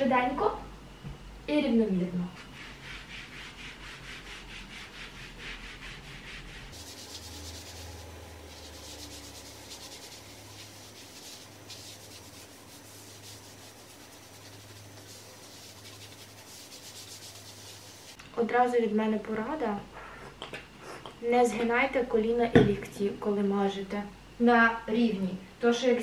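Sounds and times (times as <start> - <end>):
mitt rubbing on skin: 2.4 - 18.2.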